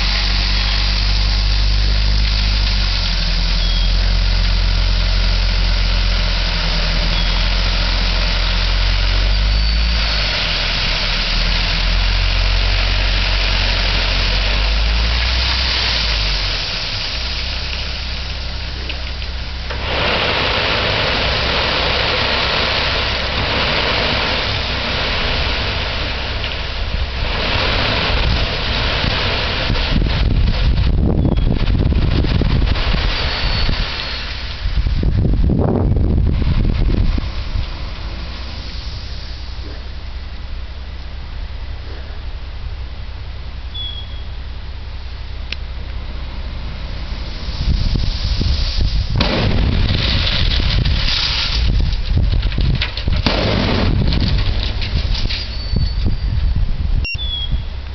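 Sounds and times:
loud steady rushing noise: 0.0s - 43.6s, 44.4s - 55.2s
diesel engine running: 0.0s - 57.9s
crushed stone tipping out: 49.1s - 56.4s.

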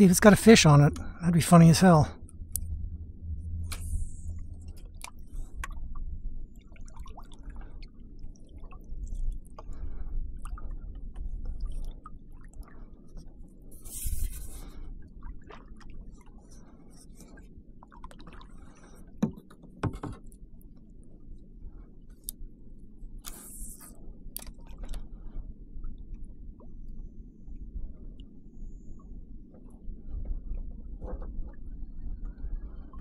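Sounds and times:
water sloshing and dripping: 0.0s - 20.9s
knocks and clicks on hull: 19.2s - 20.4s, 29.5s - 32.4s.

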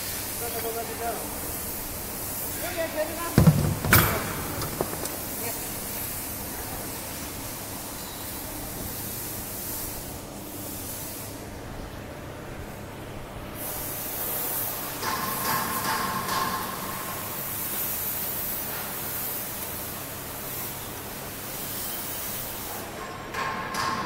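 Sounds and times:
workshop machine hiss: 13.6s - 23.0s.

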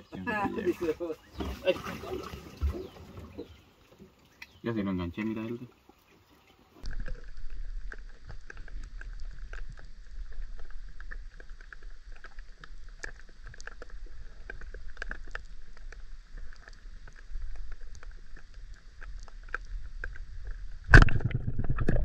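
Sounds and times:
underwater river rumble: 5.7s - 22.0s
sharp clicks and crackles: 6.8s - 22.0s.

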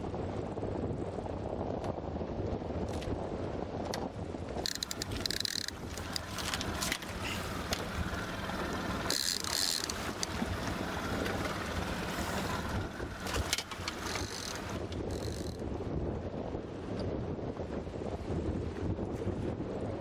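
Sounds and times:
wind noise on microphone: 0.0s - 20.0s
water splashing around boat: 4.2s - 15.6s
outboard motor humming: 4.6s - 15.6s.

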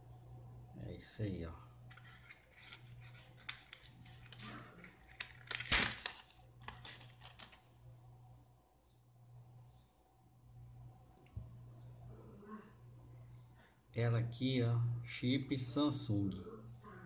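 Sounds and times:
faint handling noise: 1.8s - 7.8s
plastic packaging crackling: 1.9s - 7.8s.

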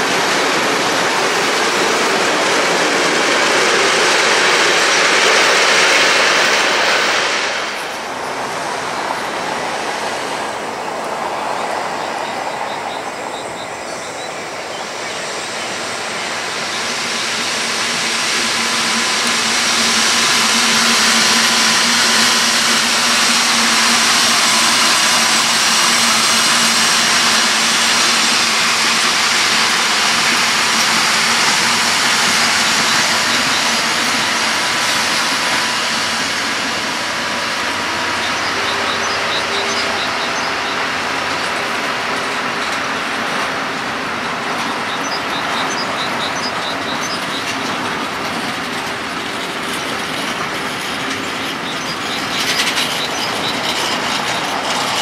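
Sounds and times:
diesel locomotive engine passing: 0.0s - 55.0s
wagon wheels clattering over rail joints: 37.8s - 55.0s.

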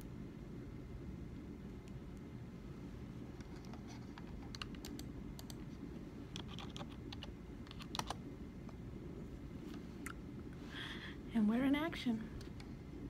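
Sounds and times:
low room hum: 0.0s - 13.0s
keyboard keystroke clicks: 6.4s - 8.2s.

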